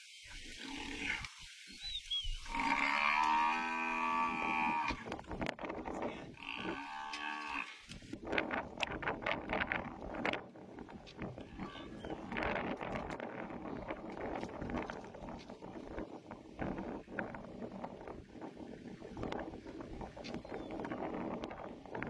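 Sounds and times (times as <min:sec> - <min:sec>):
buffalo bellowing in distress: 0:02.4 - 0:05.1, 0:06.4 - 0:07.8.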